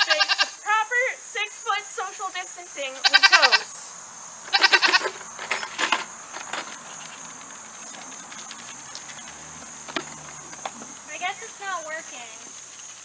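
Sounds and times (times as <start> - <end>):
goat bleating: 0.0 - 0.6, 2.9 - 3.8, 4.5 - 5.2
insect drone: 0.0 - 13.0
quick clinks: 5.0 - 6.7.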